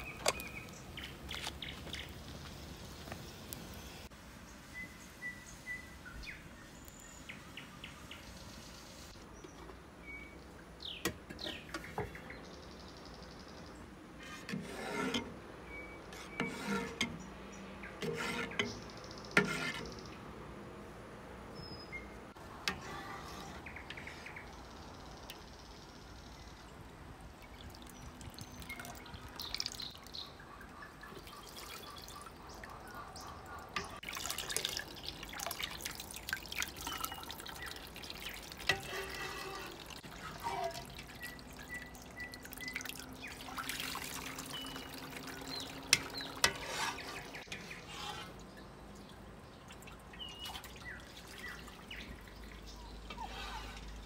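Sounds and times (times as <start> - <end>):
liquid sloshing and dripping: 27.2 - 54.0.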